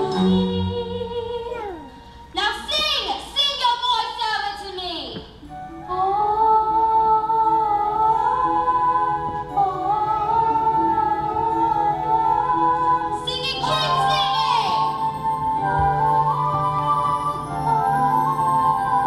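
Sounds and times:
person singing long notes: 0.0s - 2.0s
instrumental accompaniment: 5.2s - 19.0s.

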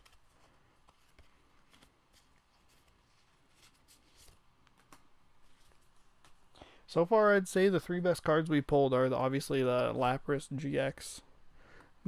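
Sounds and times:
cards being shuffled: 0.0s - 6.5s.

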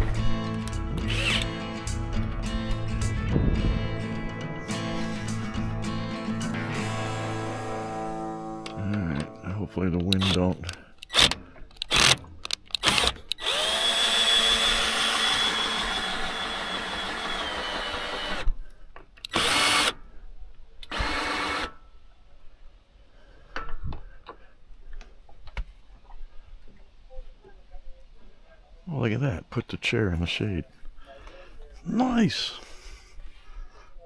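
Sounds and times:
electric motor whirring: 0.6s - 1.7s, 12.8s - 18.5s.

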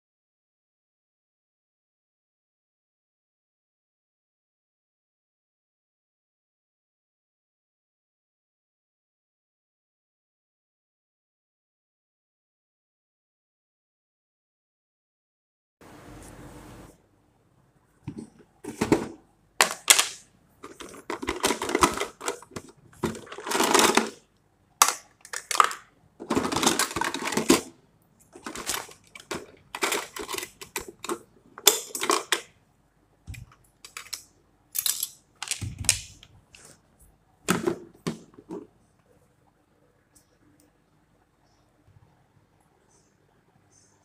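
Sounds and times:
plastic containers clattering on metal tray: 18.0s - 24.2s, 24.8s - 32.5s, 37.5s - 38.7s.

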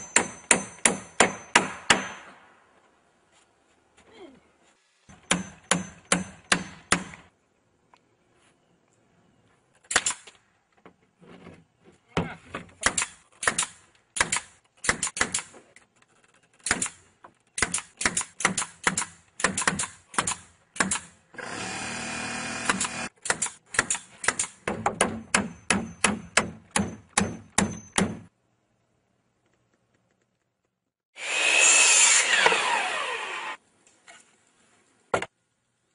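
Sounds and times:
hammer striking nails into wood: 0.0s - 2.3s, 5.2s - 7.2s, 22.6s - 28.3s.

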